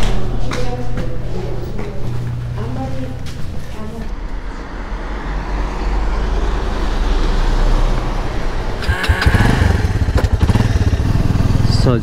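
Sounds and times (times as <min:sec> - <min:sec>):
wind and road noise: 0:04.1 - 0:11.7
motorcycle engine running: 0:08.4 - 0:12.0.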